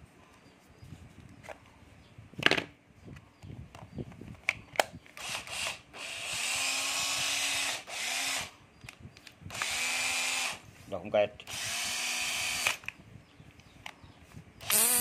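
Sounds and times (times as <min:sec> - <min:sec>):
cordless drill motor whine: 0:05.2 - 0:08.5, 0:09.5 - 0:10.6, 0:11.5 - 0:12.8, 0:14.6 - 0:15.0
drill clicks: 0:14.6 - 0:15.0.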